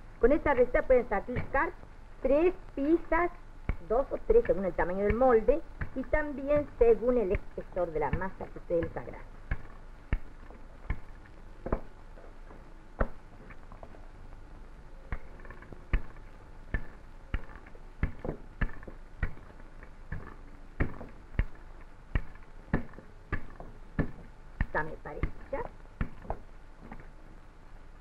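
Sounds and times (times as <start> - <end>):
rolling pin knocking on board: 3.7 - 11.9, 15.1 - 27.0.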